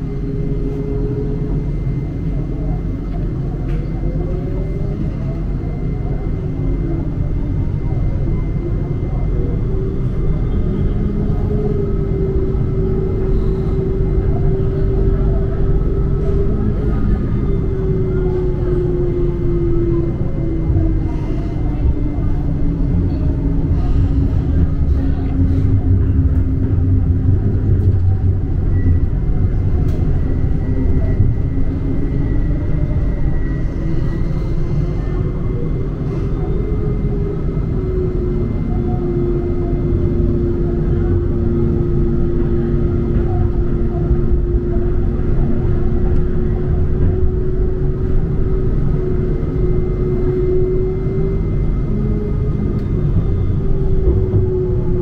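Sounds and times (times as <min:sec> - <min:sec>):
tram motor whine: 0:00.0 - 0:55.0
tram rumbling in motion: 0:00.0 - 0:55.0.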